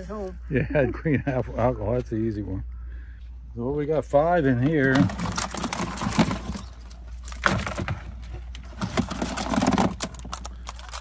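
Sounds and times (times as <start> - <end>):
crabs scrabbling in container: 4.7 - 11.0.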